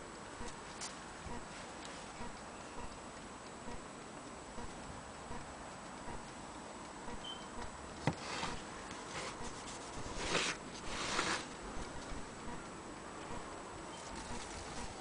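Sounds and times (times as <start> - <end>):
scratchy rustles: 8.2 - 12.2.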